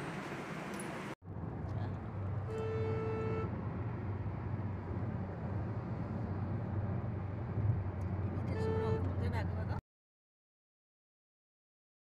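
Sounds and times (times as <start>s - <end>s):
car road and engine rumble: 0.0s - 9.8s
vehicle horn: 2.5s - 3.5s, 8.5s - 9.1s.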